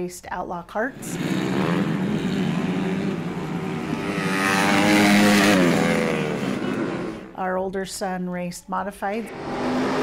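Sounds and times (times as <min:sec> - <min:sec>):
race car engine running: 0:01.1 - 0:07.3.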